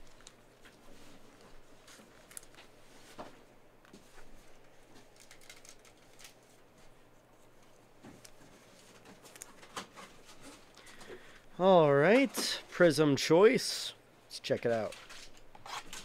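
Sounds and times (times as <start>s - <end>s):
trading cards clicking and rustling: 4.9s - 6.6s.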